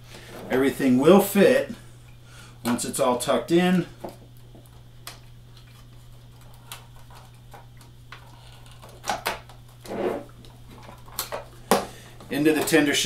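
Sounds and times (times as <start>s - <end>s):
steady low hum: 0.0s - 13.0s
rustling scrapes: 9.8s - 10.3s.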